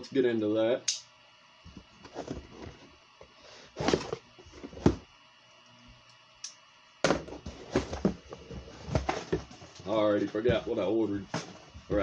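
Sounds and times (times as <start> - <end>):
cardboard box rustling: 2.0 - 2.9, 3.7 - 5.0, 7.3 - 12.0.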